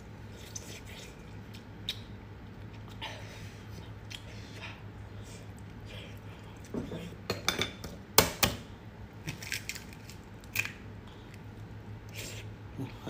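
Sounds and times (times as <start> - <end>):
eggshell cracking and peeling: 9.2 - 10.9.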